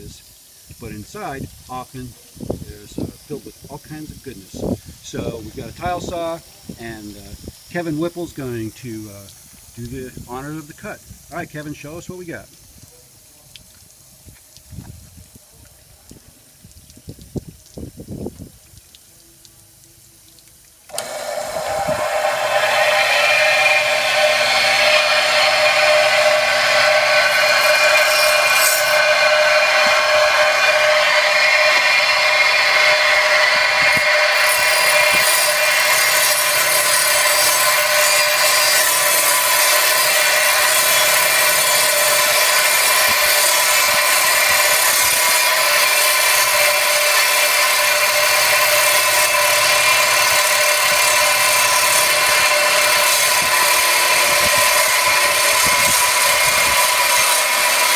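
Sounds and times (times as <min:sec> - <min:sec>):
tile saw cutting shell: 0:20.9 - 0:57.9.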